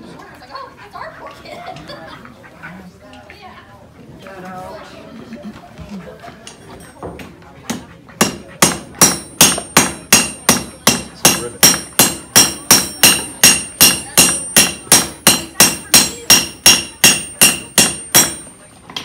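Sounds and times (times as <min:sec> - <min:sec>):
hammer striking iron on anvil: 0:07.7 - 0:19.0.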